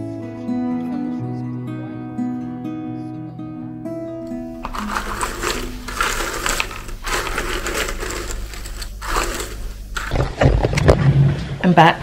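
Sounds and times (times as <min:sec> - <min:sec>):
cardboard puzzle pieces rattling: 0:04.6 - 0:10.3.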